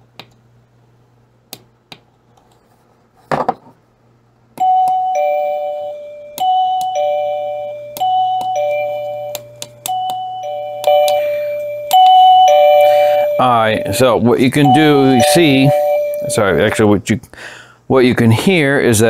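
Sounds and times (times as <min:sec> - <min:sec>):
two-note ding-dong door chime: 0:04.6 - 0:16.8.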